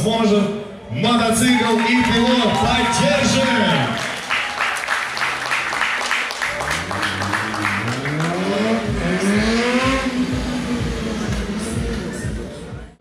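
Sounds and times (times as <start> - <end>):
people clapping: 1.5 - 9.2
motorcycle engine revving: 6.5 - 13.0.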